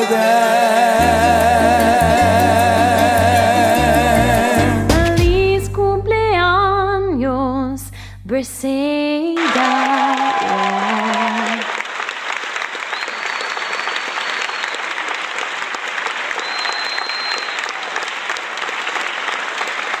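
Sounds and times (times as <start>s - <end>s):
crowd applauding: 9.4s - 20.0s.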